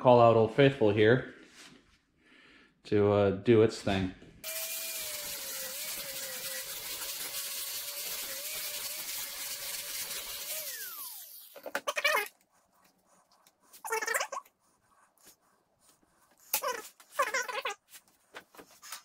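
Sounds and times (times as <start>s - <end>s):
angle grinder cutting metal: 4.4s - 12.3s.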